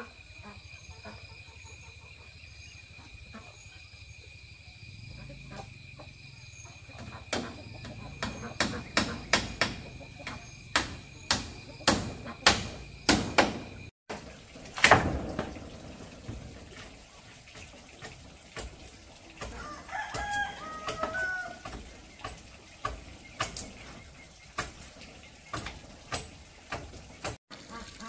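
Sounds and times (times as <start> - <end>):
wood and bamboo knocking: 7.0 - 27.4
rooster crowing: 19.5 - 21.7.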